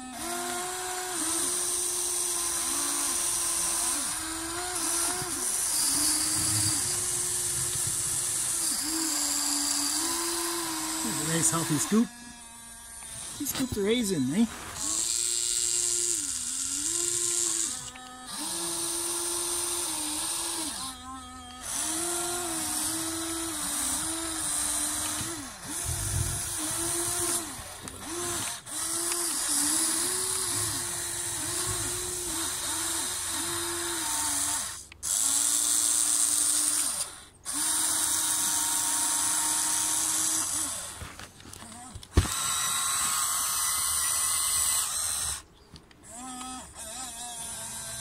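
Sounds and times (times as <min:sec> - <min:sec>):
electric motors whining: 0:00.0 - 0:48.0.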